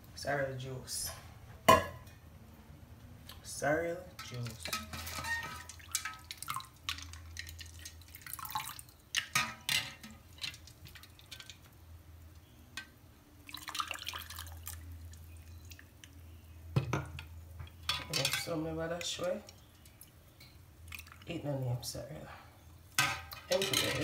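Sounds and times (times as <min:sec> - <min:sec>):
drink poured over ice splashing: 0:05.1 - 0:09.3.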